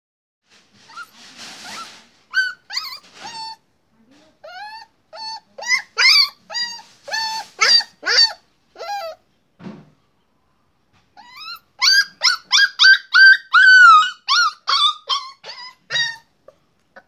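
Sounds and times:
puppy yipping and barking: 0.9 - 3.6, 4.4 - 9.2, 11.2 - 16.3.

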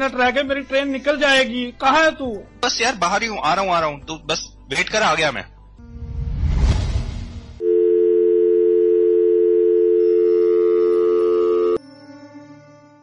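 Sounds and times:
rumbling noise: 5.9 - 7.6
telephone line tone: 7.6 - 11.8.

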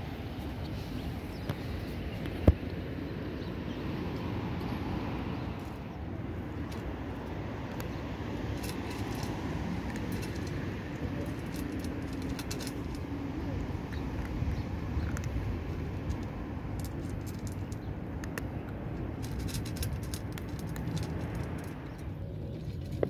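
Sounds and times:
steady low rumble: 0.0 - 23.0
cat crunching kibble: 6.2 - 23.0.

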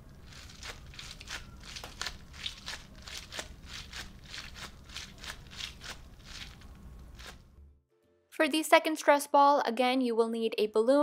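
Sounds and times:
stress ball crackling squelches: 0.0 - 7.7.

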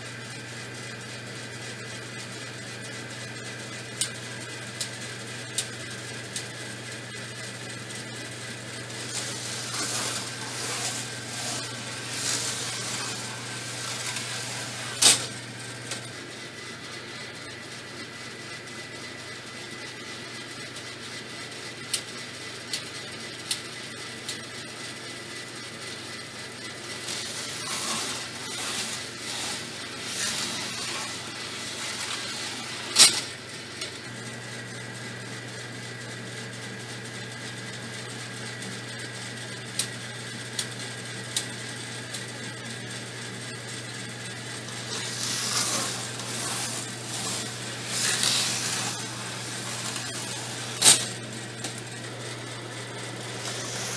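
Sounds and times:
steady low hum: 5.4 - 19.5, 25.7 - 35.4, 43.9 - 53.9
model coaster trains rattling: 8.9 - 16.0, 26.8 - 33.3, 44.8 - 51.1.

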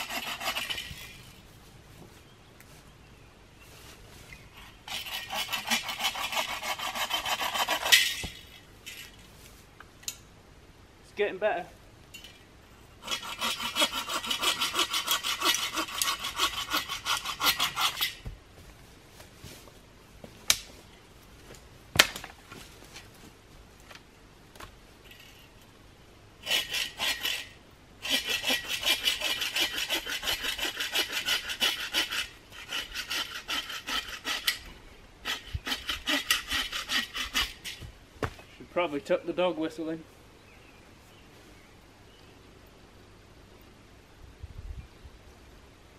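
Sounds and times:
hand saw cutting wood: 0.0 - 1.2, 4.6 - 8.4, 13.0 - 18.2, 26.4 - 37.9.

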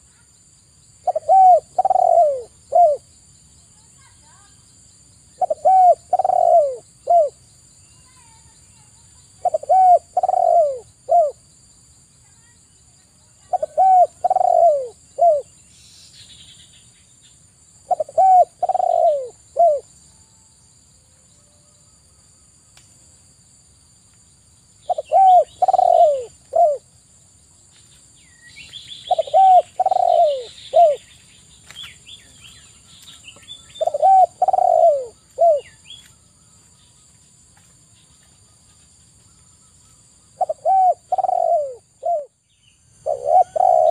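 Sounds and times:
small birds chirping: 0.0 - 20.0, 24.1 - 43.9
dove cooing: 1.0 - 3.1, 5.4 - 7.4, 9.4 - 11.4, 13.4 - 15.5, 17.8 - 19.9, 24.9 - 26.8, 29.1 - 31.1, 33.8 - 35.8, 40.4 - 42.4, 43.0 - 43.9.

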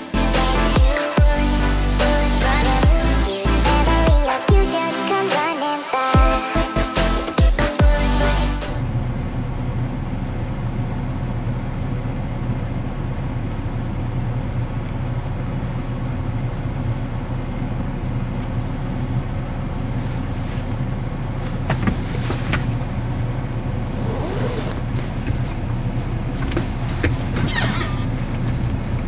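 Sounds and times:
diesel engine idling: 6.2 - 29.0.

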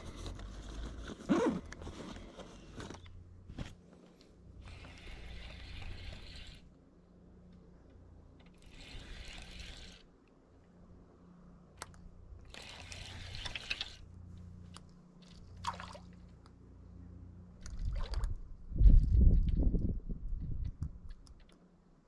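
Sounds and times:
fishing reel gears whirring: 4.6 - 6.8, 8.4 - 10.1, 12.4 - 14.1.

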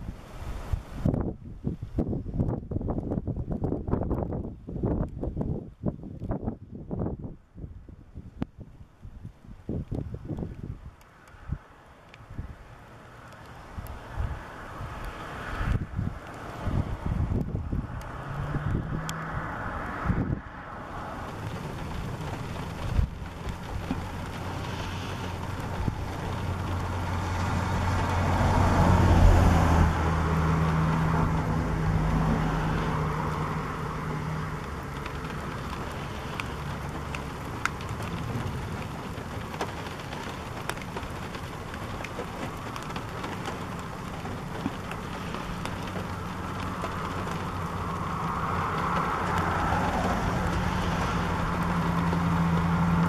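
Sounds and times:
rain and wind: 0.0 - 53.0
vehicles passing on road: 0.0 - 53.0
faint ticks: 9.8 - 12.3, 13.2 - 14.0, 17.4 - 19.3, 34.5 - 47.9.

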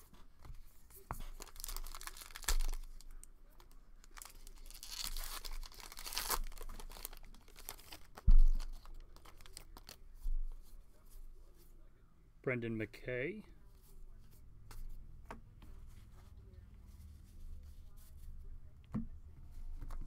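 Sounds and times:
foil wrapper tearing and crinkling: 1.2 - 3.2, 4.0 - 10.0.

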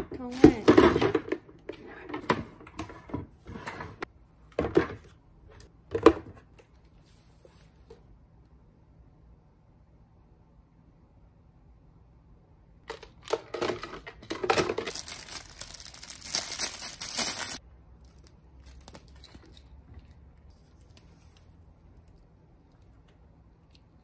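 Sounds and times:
plastic packaging tearing: 14.7 - 19.4.

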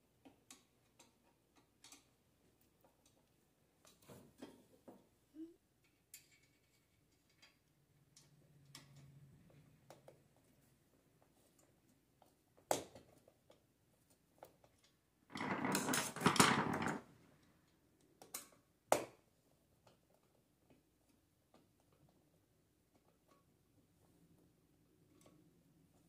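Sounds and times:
rustling scrape: 15.3 - 17.1.

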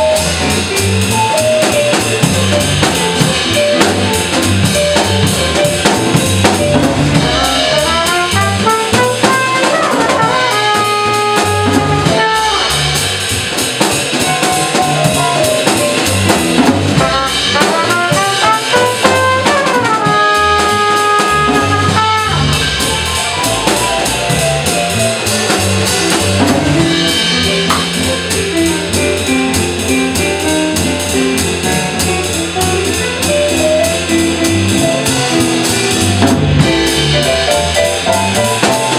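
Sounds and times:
digital stage piano: 0.0 - 38.9
drum kit: 0.0 - 38.9
upright bass: 0.0 - 38.9
trumpet solo: 7.2 - 13.2, 16.9 - 24.1.

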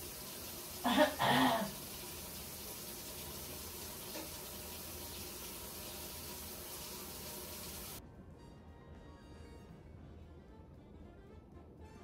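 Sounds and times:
tap running water hiss: 0.0 - 8.0.

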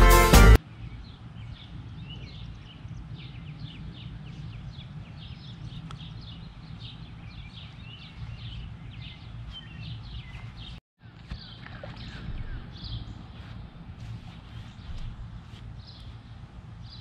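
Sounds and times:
small birds chirping: 0.6 - 17.0
steady low rumble: 12.0 - 17.0.

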